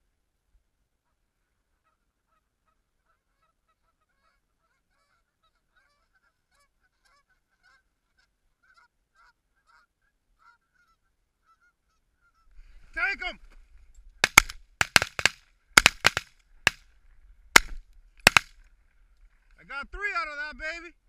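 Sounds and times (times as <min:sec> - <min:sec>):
geese honking and clucking: 0:01.0 - 0:13.4.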